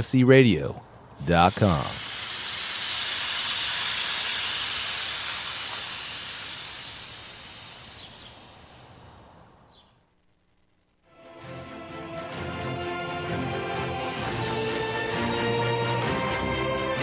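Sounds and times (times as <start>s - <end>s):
hissing whoosh: 1.2s - 9.4s.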